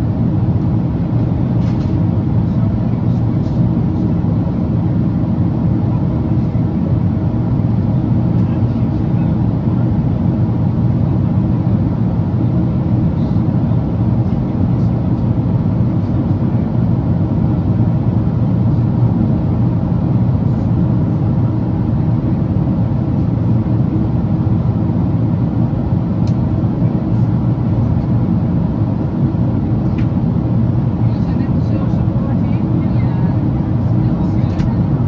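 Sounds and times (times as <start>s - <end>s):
airplane cabin engine rumble: 0.0s - 35.0s.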